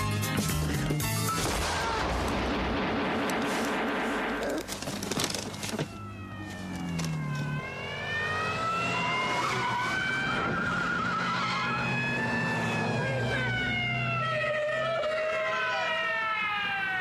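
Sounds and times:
car engine revving: 6.6 - 14.2.

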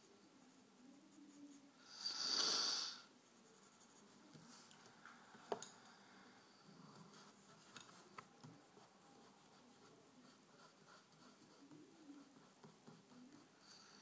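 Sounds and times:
pencil rubbing on paper: 0.0 - 1.8, 3.3 - 4.6, 6.9 - 13.8.

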